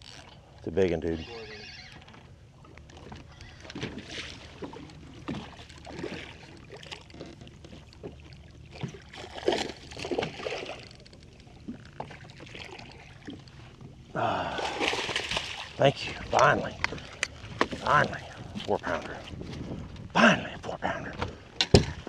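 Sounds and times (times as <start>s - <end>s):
wind and water wash: 2.1s - 22.0s
fish splashing: 2.8s - 18.6s
knocks on boat: 21.2s - 22.0s.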